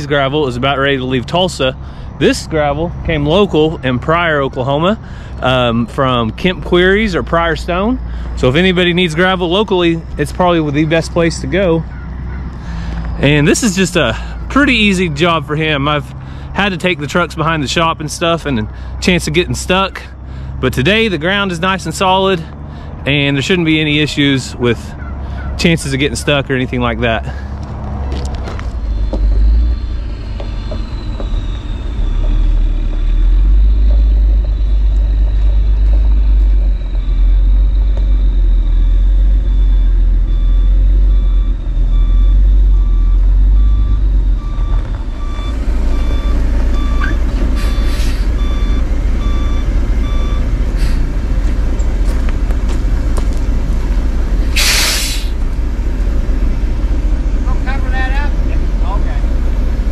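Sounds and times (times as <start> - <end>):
diesel truck engine running: 0.0 - 59.9
back-up alarm beeping: 28.6 - 50.6
air brakes hissing: 47.0 - 48.4, 50.7 - 51.2, 54.4 - 55.5.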